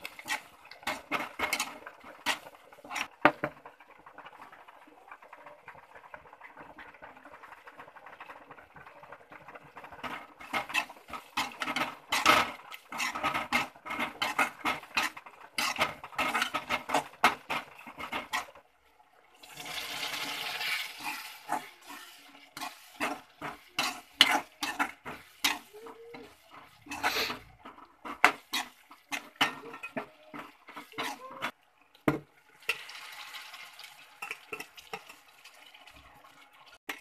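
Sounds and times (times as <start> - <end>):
spatula scraping metal pan: 0.0 - 3.4, 9.8 - 18.6, 19.4 - 31.6.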